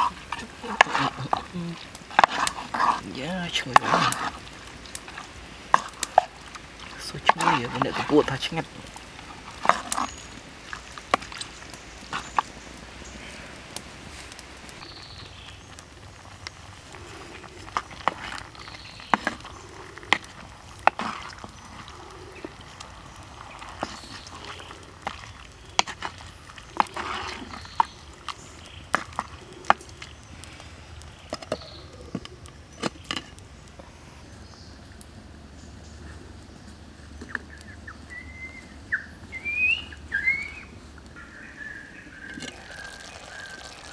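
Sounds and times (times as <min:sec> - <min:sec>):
wooden ladle stirring in clay pot: 0:00.0 - 0:14.5, 0:15.2 - 0:33.6, 0:42.2 - 0:43.9
wood knocking on pot: 0:17.7 - 0:21.6.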